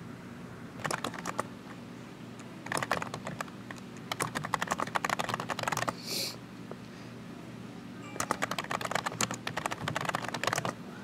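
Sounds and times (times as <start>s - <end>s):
keyboard key clicks: 0.8s - 1.5s, 2.6s - 5.9s, 8.2s - 10.8s.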